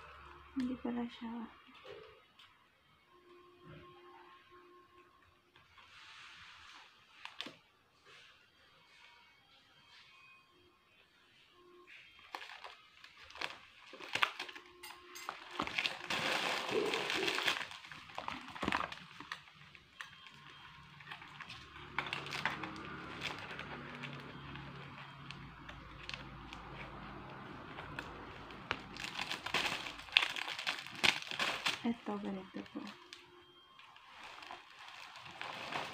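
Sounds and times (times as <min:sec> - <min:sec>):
plastic packaging crinkling: 0:12.1 - 0:35.9.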